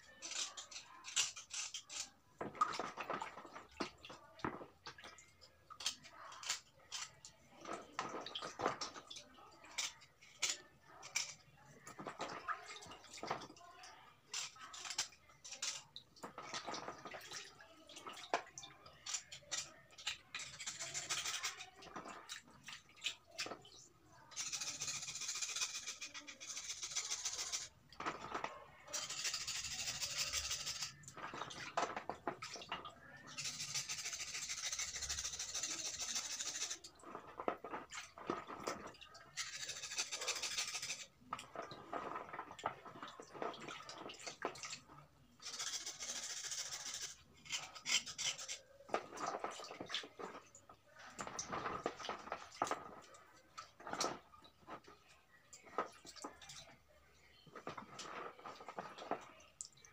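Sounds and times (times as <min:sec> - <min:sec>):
knife scraping on stone: 0:45.4 - 0:48.6.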